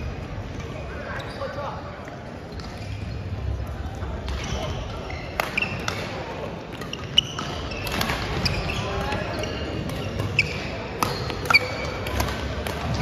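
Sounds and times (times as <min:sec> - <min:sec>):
murmur of voices: 0:00.0 - 0:13.0
shoe squeaks on wooden floor: 0:07.0 - 0:12.0
racket hitting shuttlecock: 0:09.8 - 0:13.0.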